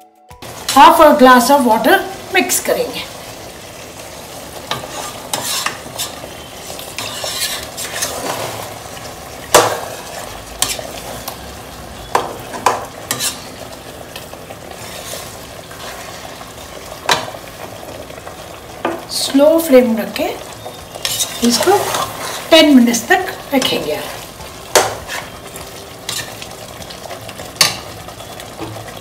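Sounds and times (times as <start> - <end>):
simmering sauce sizzling: 0.4 - 29.0
metal spoon stirring gravy: 4.6 - 8.8, 13.0 - 13.6, 14.2 - 17.2, 20.8 - 22.6, 26.1 - 26.8.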